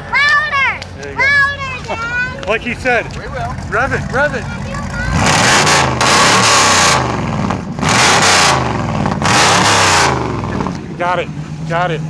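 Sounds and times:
v-eight engine revving: 2.6s - 12.0s.

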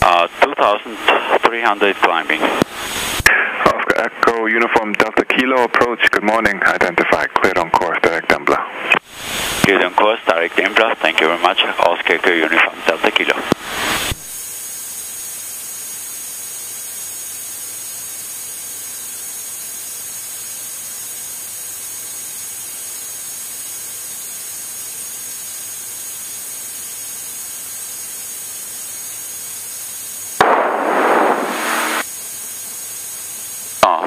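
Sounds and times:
loud burst of noise: 0.0s - 4.4s, 8.6s - 14.4s, 30.4s - 32.2s
intercom radio hiss: 0.0s - 14.2s, 30.4s - 32.1s, 33.8s - 34.0s.

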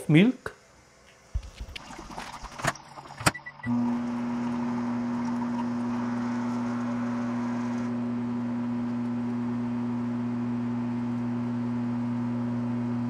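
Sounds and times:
microwave oven humming: 2.8s - 13.0s.

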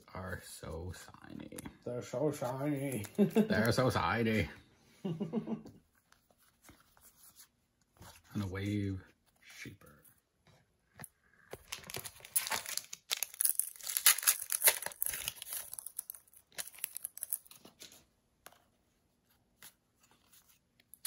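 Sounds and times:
cards rustling and clicking: 2.4s - 4.0s, 11.5s - 18.7s
foil pack tearing and crinkling: 11.6s - 17.6s.

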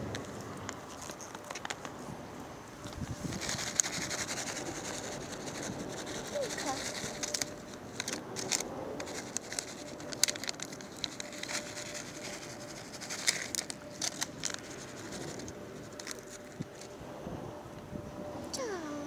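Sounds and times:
plastic pouch crinkling: 3.3s - 16.6s.

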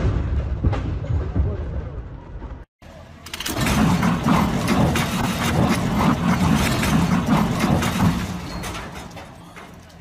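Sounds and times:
diesel truck engine running: 2.9s - 9.8s.

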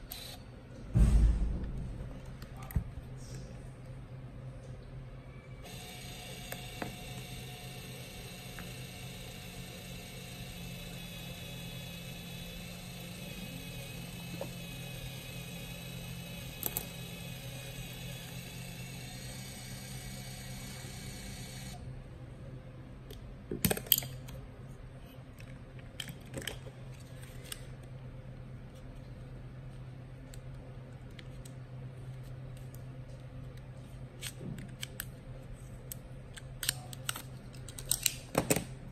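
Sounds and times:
camera motor whirring: 0.0s - 0.4s, 5.6s - 21.8s.

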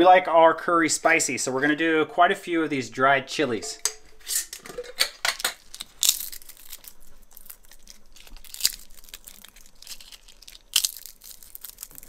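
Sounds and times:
dried chili peppers crunching: 5.2s - 12.0s.

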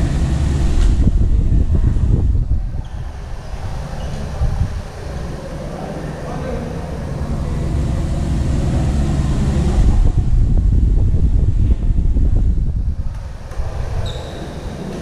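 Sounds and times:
wind buffeting microphone: 0.0s - 5.4s, 7.3s - 14.8s
high squeak: 14.0s - 15.0s.

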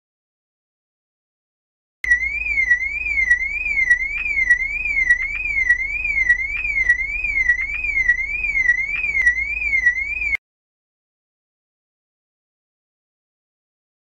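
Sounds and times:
electronic alarm siren warbling: 2.0s - 10.4s.

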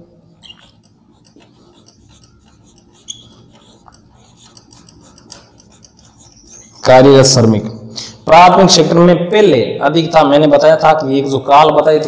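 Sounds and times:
pen tapping: 0.4s - 6.8s
marker pen scratching on paper: 0.4s - 7.5s.

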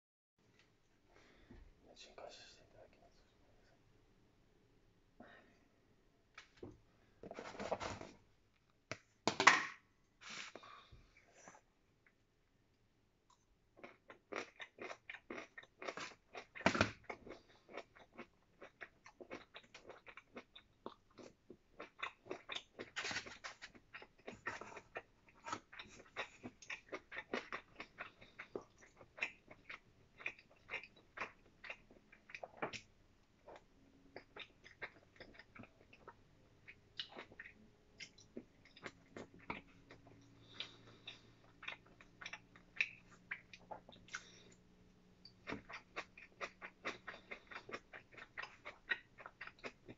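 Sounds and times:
person chewing: 13.3s - 44.6s, 45.3s - 49.9s.

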